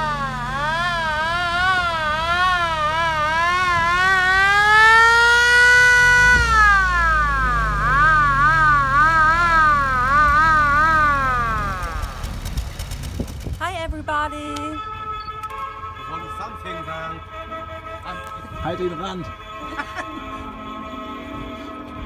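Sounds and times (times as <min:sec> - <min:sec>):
electronic siren yelping and wailing: 0:00.0 - 0:12.3.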